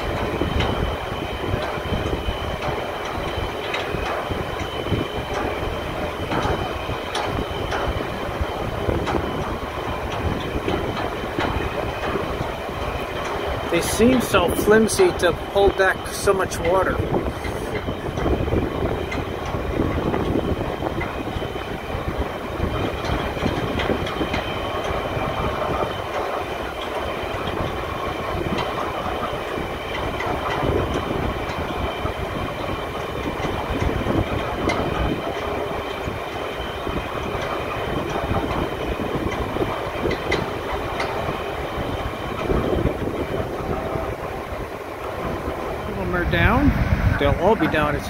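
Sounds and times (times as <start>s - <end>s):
faint high whine: 0.0s - 23.0s
dam gate machinery rumble: 0.0s - 48.0s
wind buffeting microphone: 0.0s - 48.0s.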